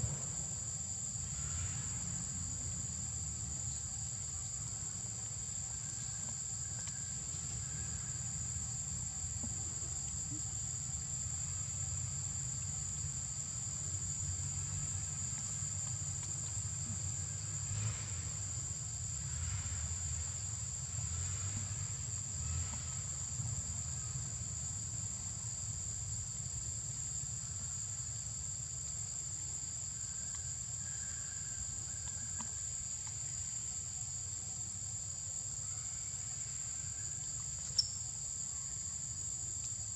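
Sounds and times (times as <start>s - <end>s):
high-pitched insect drone: 35.6s - 38.7s.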